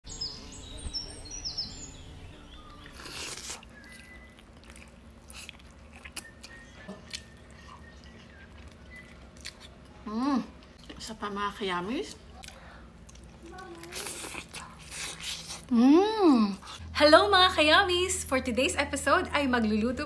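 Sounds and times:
faint high chirps: 0:00.1 - 0:05.0, 0:06.0 - 0:09.4
person chewing food: 0:02.7 - 0:11.0, 0:12.3 - 0:15.7.

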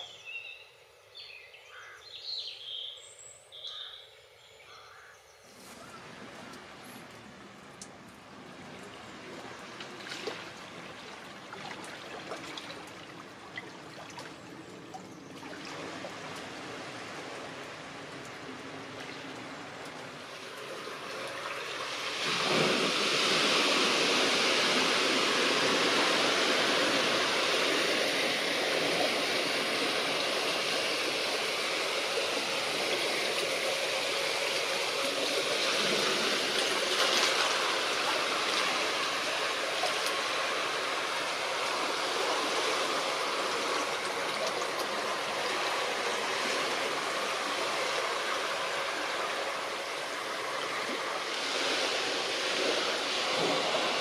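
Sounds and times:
river water rushing: 0:05.5 - 0:54.0.

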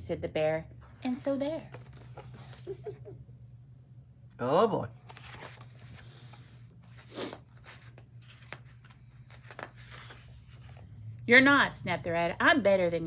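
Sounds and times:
steady low hum: 0:00.0 - 0:13.0
book pages rustling: 0:01.4 - 0:02.8, 0:05.0 - 0:10.9.

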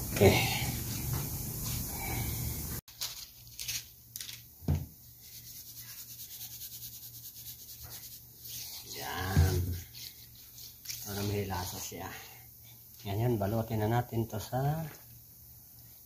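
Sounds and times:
hands rubbing fish: 0:05.2 - 0:11.7.

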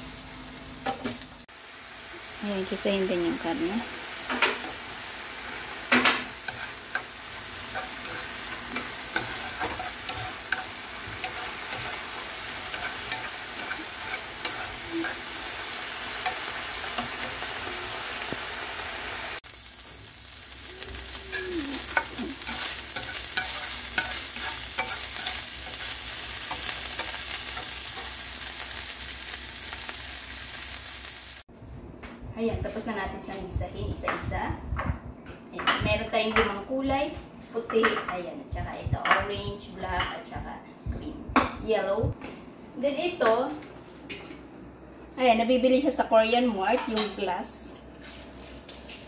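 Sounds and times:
meat sizzling in oil: 0:00.0 - 0:31.5
chopsticks clicking and scraping pan: 0:05.9 - 0:18.4, 0:21.3 - 0:28.2.

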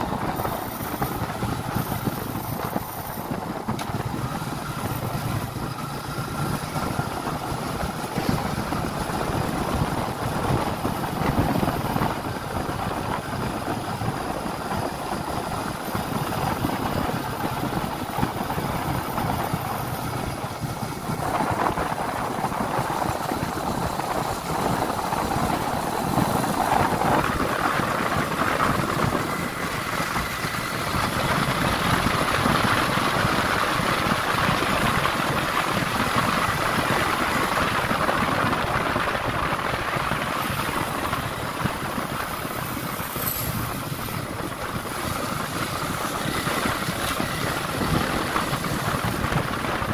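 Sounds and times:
motorcycle engine running: 0:00.0 - 0:49.9
road and wind noise: 0:00.0 - 0:49.9.

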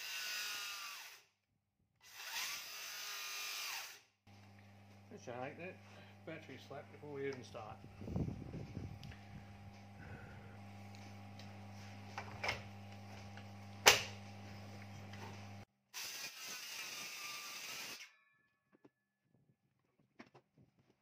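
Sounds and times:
circular saw cutting timber: 0:00.0 - 0:01.2, 0:09.8 - 0:18.1
steady low hum: 0:04.3 - 0:15.6.

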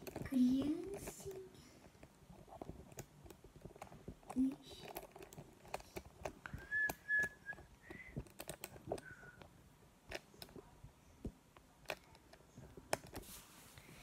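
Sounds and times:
pen tapping and scratching paper: 0:00.0 - 0:13.4
person whistling: 0:06.6 - 0:08.3.

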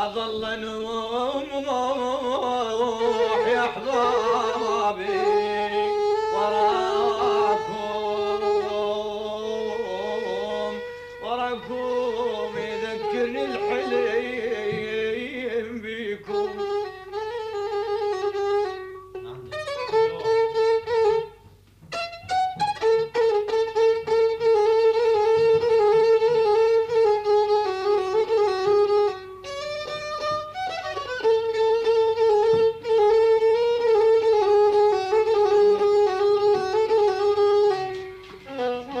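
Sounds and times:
violin playing ornamented melody: 0:02.9 - 0:14.9, 0:16.2 - 0:39.0.

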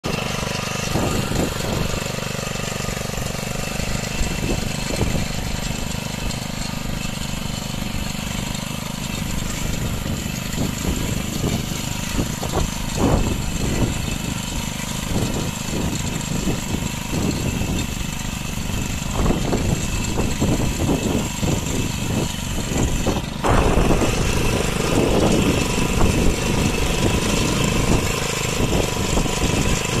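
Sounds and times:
small engine running: 0:00.0 - 0:30.0.

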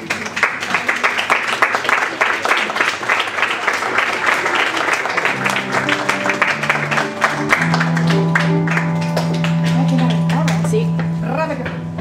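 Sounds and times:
audience applauding: 0:00.0 - 0:10.8
music with long low notes: 0:05.0 - 0:12.0.

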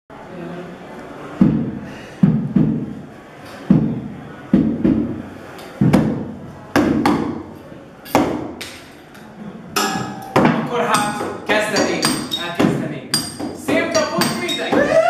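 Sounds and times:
thumping on wooden boxes: 0:01.4 - 0:02.9, 0:03.7 - 0:05.2, 0:05.8 - 0:07.4, 0:09.8 - 0:15.0.

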